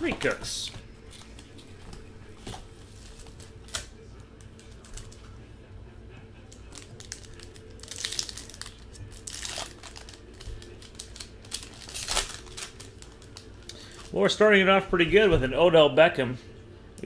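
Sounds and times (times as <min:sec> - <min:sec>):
faint steady hum: 0:00.0 - 0:17.0
foil wrapper crinkling and tearing: 0:06.5 - 0:14.2.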